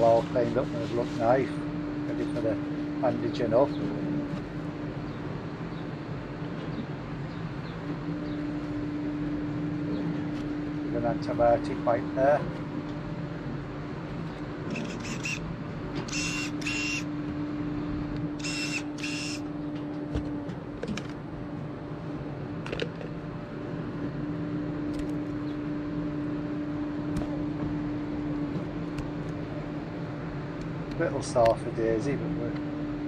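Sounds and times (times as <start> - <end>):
steady mechanical hum: 0.0 - 33.0.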